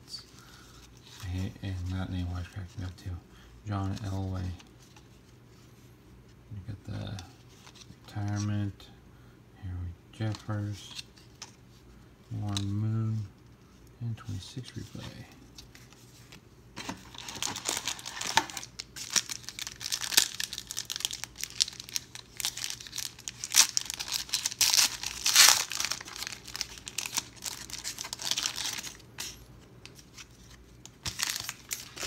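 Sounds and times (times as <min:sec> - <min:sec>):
foil wrapper crinkling: 0:16.8 - 0:32.0
foil wrapper tearing: 0:17.1 - 0:29.3, 0:31.0 - 0:32.0.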